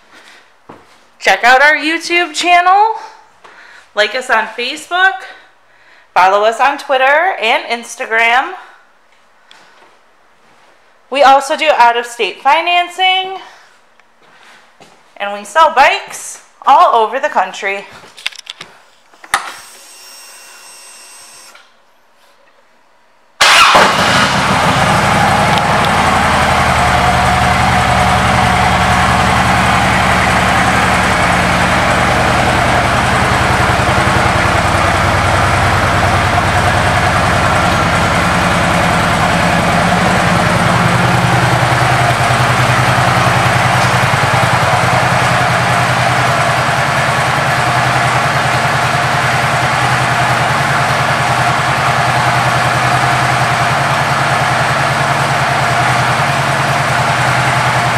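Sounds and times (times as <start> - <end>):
motorcycle engine idling: 23.5 - 57.9.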